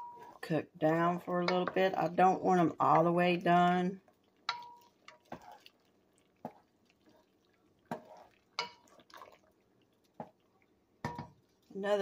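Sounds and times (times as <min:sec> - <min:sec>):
wooden spoon knocking metal pot: 0:01.4 - 0:03.2, 0:04.5 - 0:05.4, 0:11.0 - 0:11.4.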